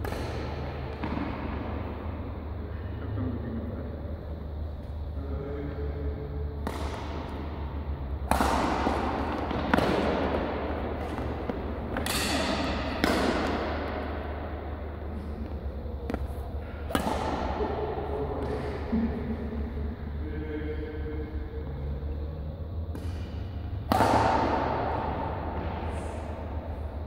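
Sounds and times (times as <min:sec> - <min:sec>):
badminton rackets hitting shuttlecock: 0:00.0 - 0:01.6, 0:06.6 - 0:14.4, 0:15.4 - 0:18.8, 0:23.0 - 0:25.7
steady low hum: 0:00.0 - 0:27.0.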